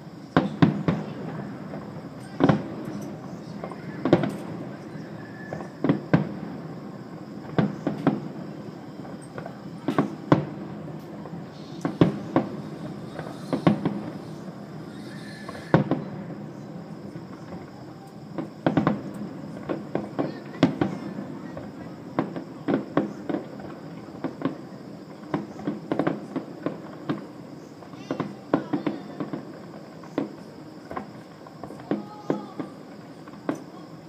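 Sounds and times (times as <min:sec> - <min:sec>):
distant fireworks bursting: 0:00.0 - 0:34.0.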